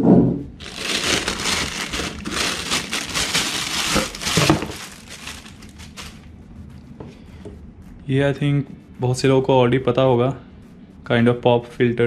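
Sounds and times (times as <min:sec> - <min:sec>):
plastic bag crinkling: 0:00.6 - 0:06.3.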